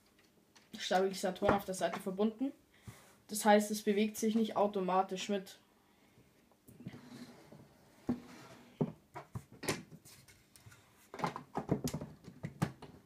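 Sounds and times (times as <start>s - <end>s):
rattling clicks of plastic pieces: 0.0s - 1.1s.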